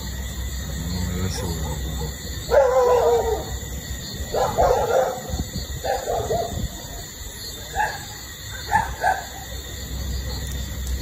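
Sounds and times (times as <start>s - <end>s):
dog yelps: 1.4s - 3.6s, 4.3s - 6.6s, 7.7s - 9.4s.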